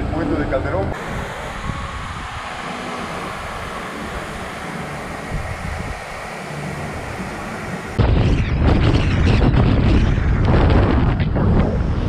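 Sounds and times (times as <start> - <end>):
wind buffeting on microphone: 0.8 - 12.0
steady hiss: 0.9 - 8.0.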